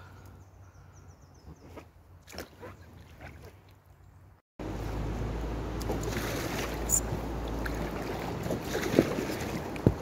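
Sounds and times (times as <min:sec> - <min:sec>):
river water rushing: 0:04.6 - 0:10.0.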